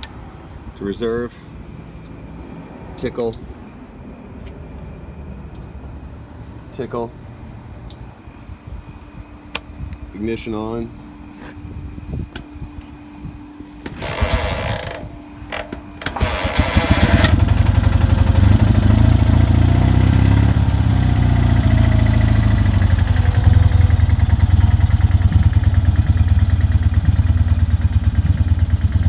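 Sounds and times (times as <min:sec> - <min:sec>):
motorcycle engine cranking and idling: 0:13.8 - 0:29.0.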